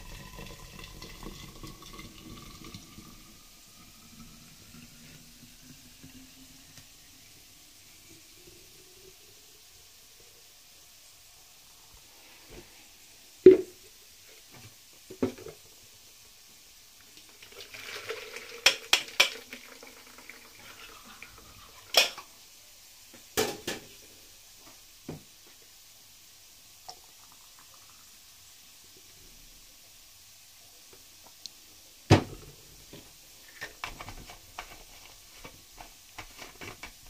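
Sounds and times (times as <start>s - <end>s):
liquid pouring through strainer: 0.0s - 7.4s, 17.2s - 22.1s.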